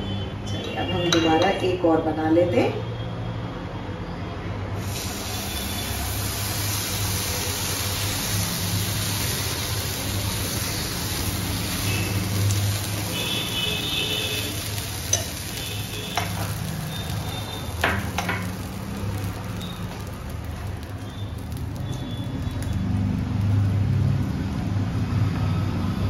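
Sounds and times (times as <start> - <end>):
batter sizzling in oil: 4.8 - 26.0.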